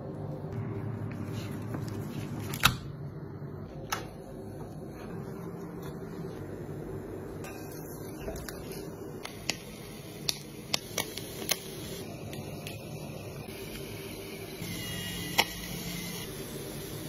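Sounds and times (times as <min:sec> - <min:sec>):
steady low hum: 0:00.0 - 0:10.8.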